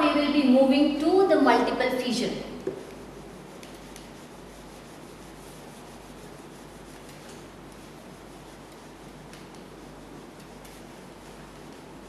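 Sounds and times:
eraser wiping whiteboard: 2.6s - 12.0s.

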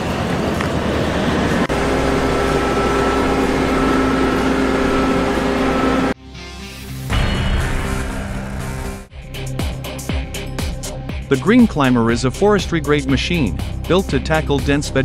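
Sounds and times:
harvester and tractor machine drone: 0.0s - 6.2s, 6.8s - 9.1s.

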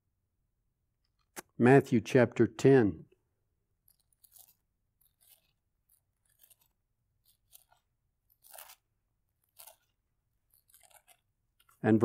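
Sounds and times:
book pages turning: 3.8s - 12.0s.

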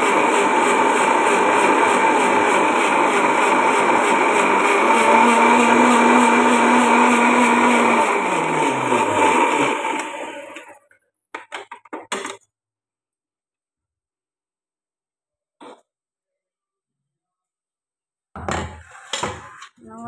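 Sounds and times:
mixer grinder motor spinning down: 0.0s - 10.8s.

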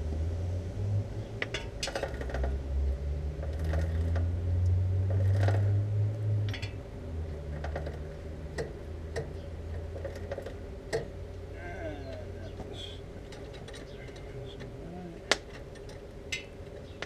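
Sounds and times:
motorcycle chain and wheel clicking: 1.4s - 2.7s, 3.4s - 11.5s, 13.1s - 17.0s.

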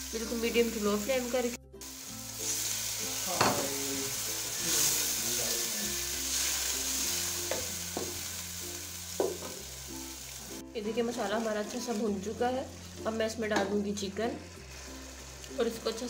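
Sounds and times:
food sizzling in oil: 0.0s - 16.0s
soft background music: 0.0s - 16.0s.

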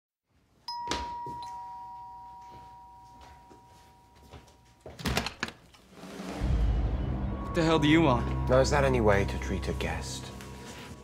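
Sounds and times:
two-tone doorbell chime: 0.7s - 4.9s
front door clacks opening: 5.0s - 5.6s.

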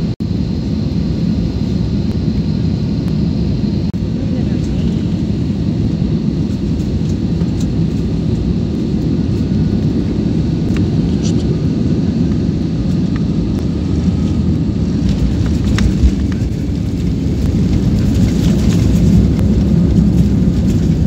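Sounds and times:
airliner cabin engine rumble: 0.0s - 21.0s.

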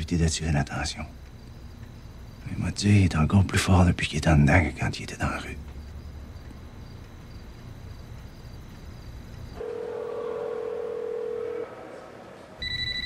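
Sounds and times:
electronic phone ring: 9.6s - 11.8s, 12.6s - 13.0s
telephone ringback tone: 9.6s - 11.8s, 12.6s - 13.0s.

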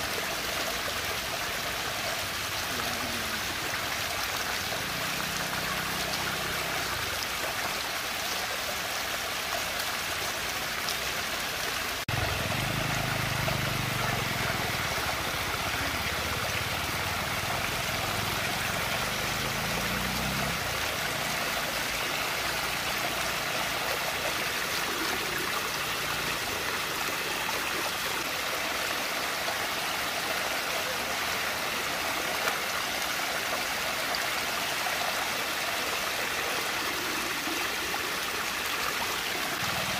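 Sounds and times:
water rushing in whirlpool: 10.1s - 39.9s.

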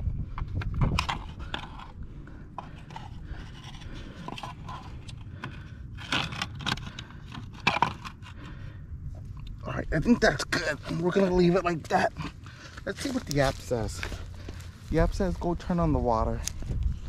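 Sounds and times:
plastic sensor scraping and clicking: 0.4s - 2.0s, 2.6s - 8.4s.

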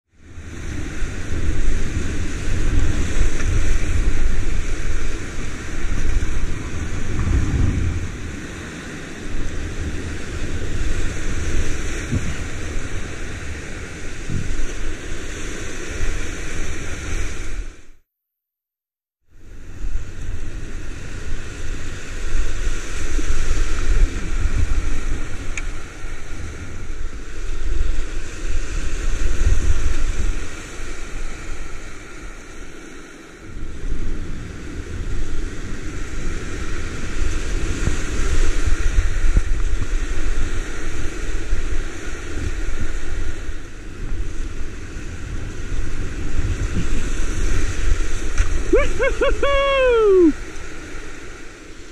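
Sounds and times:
wind rumbling on microphone: 0.1s - 18.0s, 19.4s - 51.9s
river rapids rushing: 47.2s - 50.9s.

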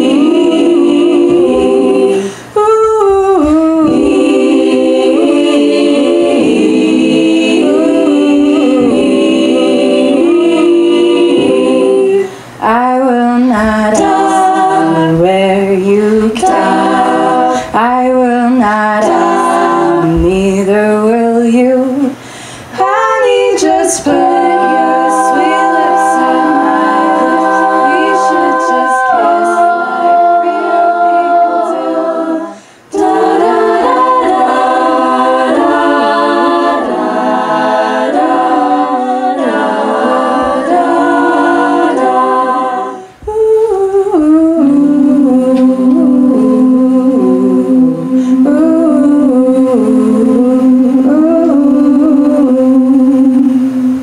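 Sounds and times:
women singing a cappella: 0.0s - 54.0s.

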